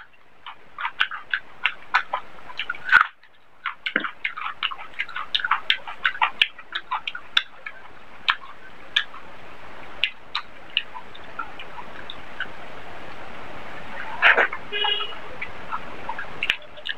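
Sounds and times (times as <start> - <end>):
wet chewing mouth clicks: 0.0 - 9.2, 10.0 - 12.6, 15.4 - 16.9.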